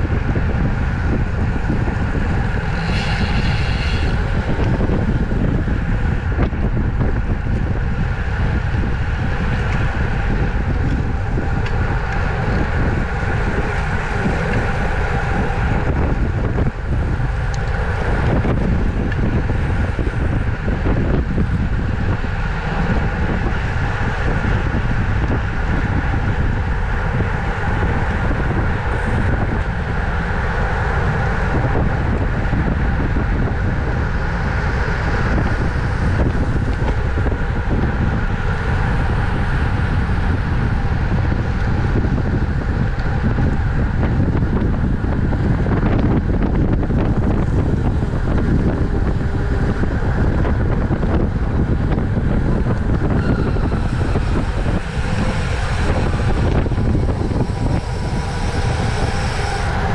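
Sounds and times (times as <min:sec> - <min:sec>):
constant rumble: 0:00.0 - 0:59.9
wind rushing over microphone: 0:00.0 - 0:59.9
faint steady tones: 0:46.9 - 0:59.9.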